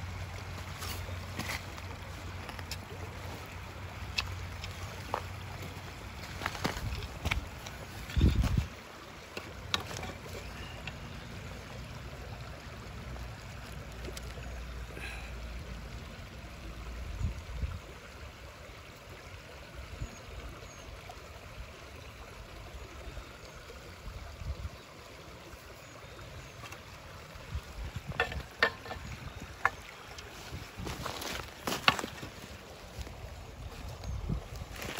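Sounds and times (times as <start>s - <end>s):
wind on microphone: 6.7s - 8.8s, 33.7s - 34.9s
stones crunching on gravel: 30.3s - 33.2s.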